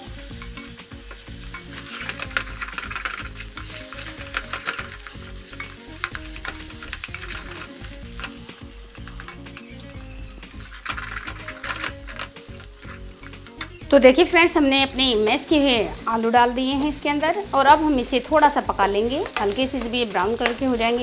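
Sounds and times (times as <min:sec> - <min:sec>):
light frying sizzle: 0:00.0 - 0:21.0
spatula scraping a pan: 0:00.2 - 0:13.8.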